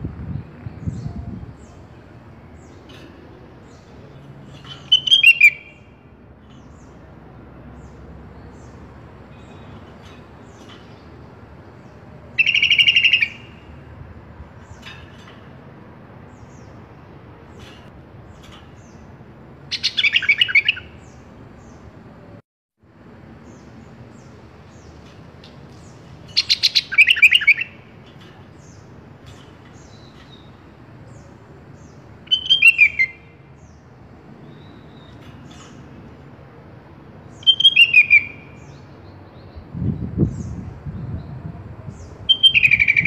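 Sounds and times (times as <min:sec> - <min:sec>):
bird chattering song: 0:00.8 - 0:13.9, 0:17.5 - 0:22.0, 0:23.4 - 0:36.0, 0:37.2 - 0:43.0.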